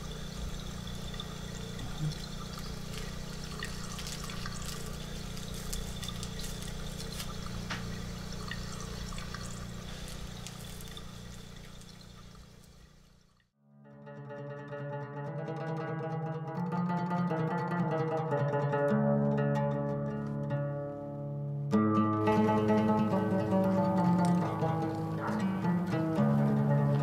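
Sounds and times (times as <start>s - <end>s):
steady low hum: 0.0s - 13.4s
water splashing in metal bathtub: 0.0s - 13.5s.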